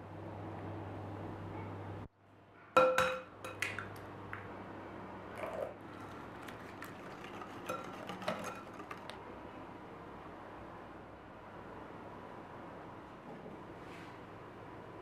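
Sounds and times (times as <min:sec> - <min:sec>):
metal spoon clinking glass bowl: 0:07.3 - 0:09.0.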